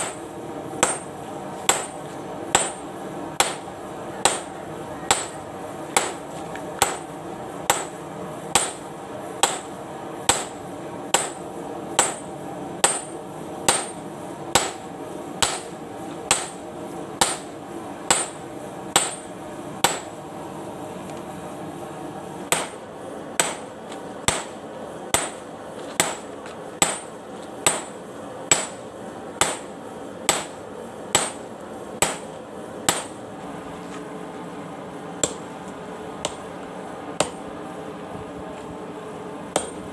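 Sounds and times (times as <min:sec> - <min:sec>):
hammer striking steel on anvil: 0:00.0 - 0:04.5, 0:05.1 - 0:05.4, 0:06.0 - 0:06.2, 0:06.8 - 0:07.1, 0:07.7 - 0:11.4, 0:12.0 - 0:14.0, 0:14.6 - 0:14.8, 0:15.4 - 0:16.6, 0:17.2 - 0:17.5, 0:18.1 - 0:18.4, 0:19.0 - 0:20.1, 0:22.5 - 0:22.8, 0:23.4 - 0:28.8, 0:29.4 - 0:29.7, 0:30.3 - 0:30.6, 0:31.2 - 0:32.3, 0:32.9 - 0:33.2, 0:35.2 - 0:35.5, 0:36.2 - 0:36.5, 0:37.2 - 0:37.4, 0:39.6 - 0:39.9
steady hum: 0:00.0 - 0:39.9.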